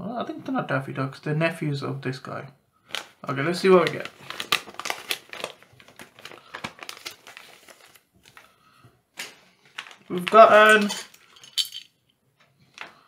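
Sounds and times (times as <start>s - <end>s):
paper and plastic packaging crinkling: 2.8s - 11.6s.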